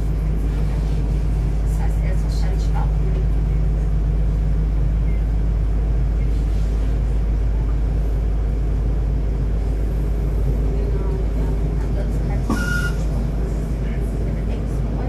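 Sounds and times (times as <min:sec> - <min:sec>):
train running rumble inside carriage: 0:00.0 - 0:15.0.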